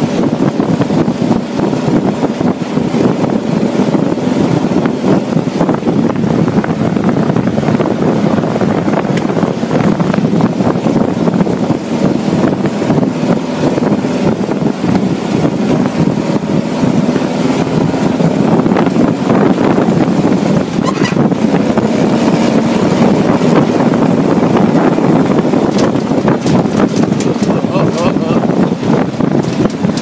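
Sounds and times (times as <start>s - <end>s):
buggy engine running: 0.0s - 30.0s
wind noise on microphone: 0.0s - 30.0s
knocks and rattles: 25.6s - 27.8s, 29.3s - 30.0s.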